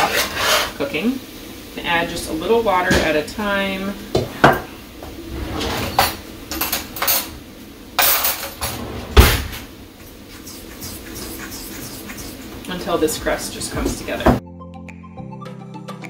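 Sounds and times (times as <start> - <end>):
fork scraping steel bowl: 0.0 - 0.8, 10.0 - 14.2
drawer thump: 9.0 - 9.6.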